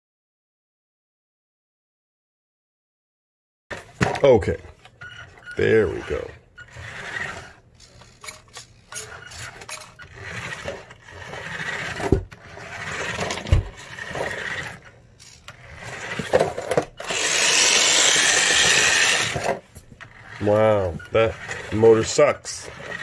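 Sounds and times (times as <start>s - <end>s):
toy car motor and gears rasping: 4.4s - 23.0s.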